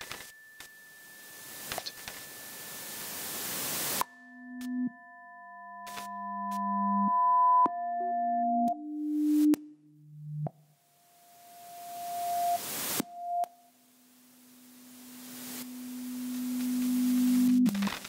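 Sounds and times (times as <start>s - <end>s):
electronic hiss: 0.0s - 4.1s, 11.1s - 18.0s
electronic tones: 5.8s - 10.6s, 11.4s - 13.6s, 15.6s - 18.0s.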